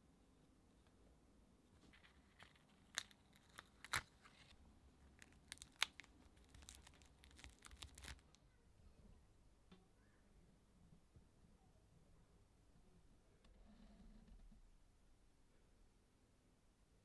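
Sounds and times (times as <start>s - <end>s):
plastic sticker crackling: 1.9s - 4.5s, 5.1s - 8.4s.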